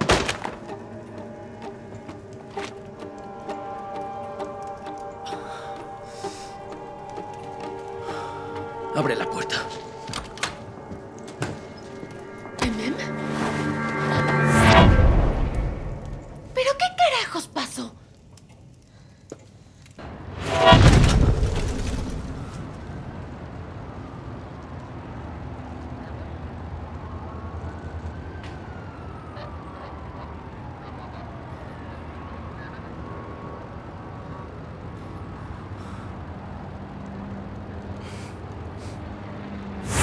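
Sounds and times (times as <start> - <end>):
low traffic rumble: 0.0 - 17.2, 18.0 - 40.0
faint distant siren: 0.6 - 17.4, 21.8 - 40.0
loud whoosh: 11.7 - 16.5, 20.2 - 22.5.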